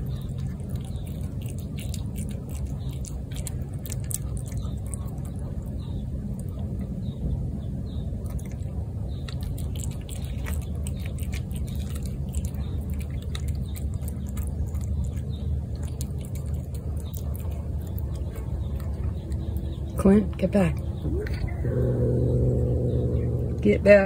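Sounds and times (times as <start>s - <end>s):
cat chewing wet food: 0.0s - 7.1s, 8.1s - 20.0s
steady low rumble: 0.0s - 24.0s.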